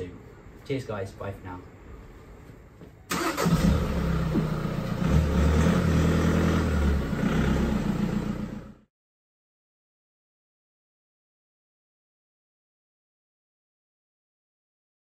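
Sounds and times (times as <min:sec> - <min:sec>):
car engine starting and idling: 0:03.1 - 0:08.9.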